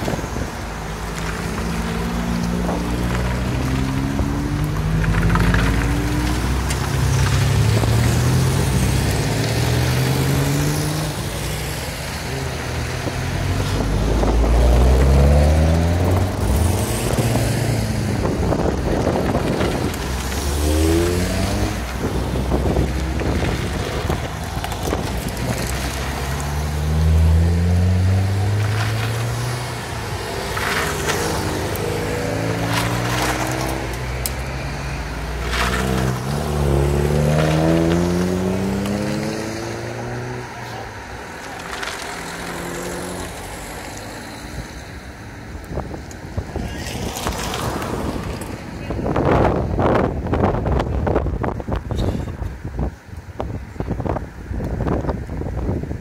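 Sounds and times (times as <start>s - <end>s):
cars accelerating past: 0.0s - 51.2s.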